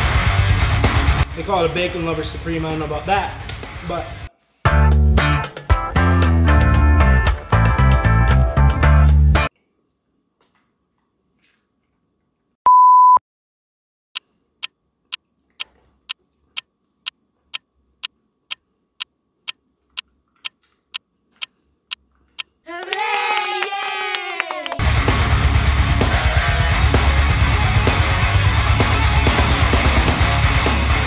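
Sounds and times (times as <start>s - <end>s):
electronic beep: 12.7s - 13.2s.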